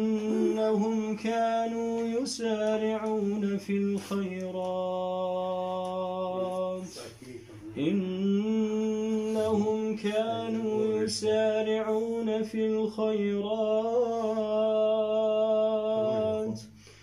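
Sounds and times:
man chanting melodic recitation: 0.0 - 16.6.

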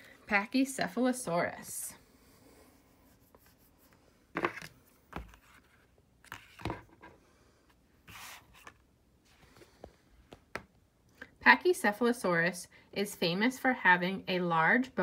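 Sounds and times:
paper book rustling: 4.4 - 7.1, 8.0 - 10.4.

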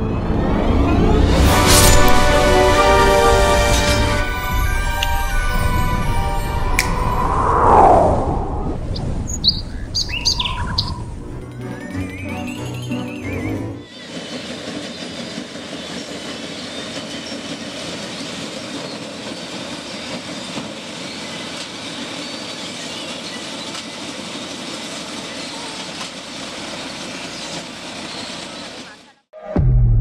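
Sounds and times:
combine harvester droning: 0.0 - 13.9.

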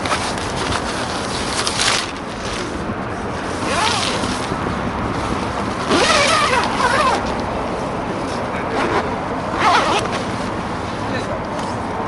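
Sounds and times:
nylon fabric rustling: 0.0 - 7.6, 8.8 - 10.9
zipper being pulled: 3.5 - 4.5, 5.8 - 7.4, 8.7 - 10.3.

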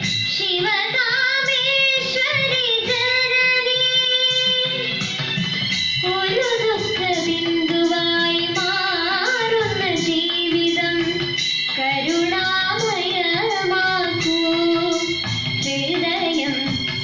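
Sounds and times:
instrumental accompaniment: 0.0 - 17.0
girl singing devotional song: 0.2 - 5.0, 6.0 - 17.0.

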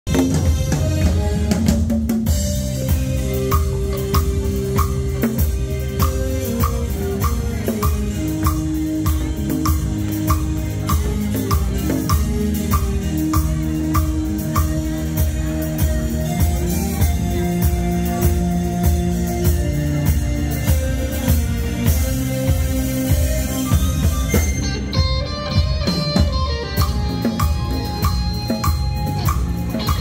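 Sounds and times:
bass line: 0.1 - 30.0
drum kit steady beat: 0.1 - 30.0
held keyboard chords: 0.1 - 30.0.

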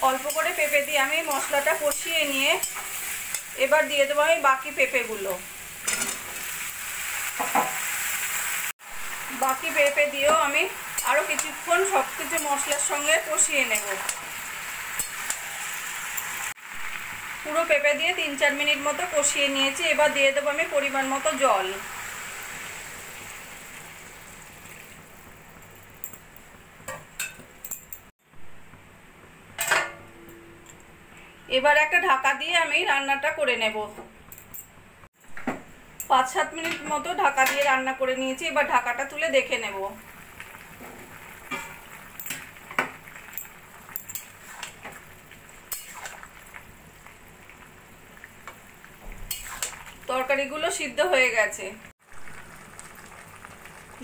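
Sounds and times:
water hissing in hot pan: 0.0 - 26.0, 39.4 - 50.4
metal utensil clinking on pan: 0.2 - 3.6, 5.8 - 6.3, 26.9 - 28.0, 29.6 - 30.0, 43.3 - 44.7
curry simmering: 39.9 - 50.1, 52.0 - 54.0
steel spatula scraping a wok: 44.0 - 44.8.

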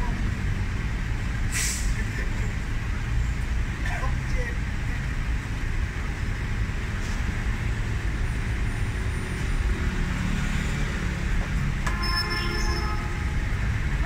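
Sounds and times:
short multi-tone sound: 11.8 - 13.6.

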